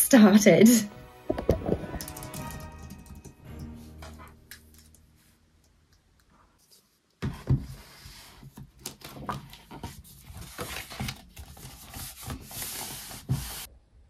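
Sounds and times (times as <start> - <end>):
paper pages rustling: 6.6 - 13.7.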